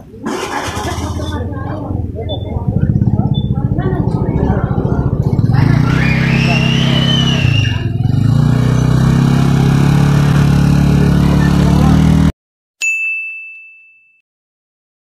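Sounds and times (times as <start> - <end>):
scooter engine idling: 0.2 - 12.3
bright ding: 12.8 - 14.2.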